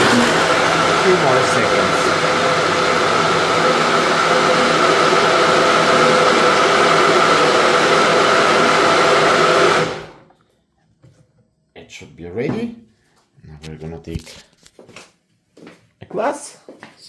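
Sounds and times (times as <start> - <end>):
blender motor running: 0.0 - 10.3.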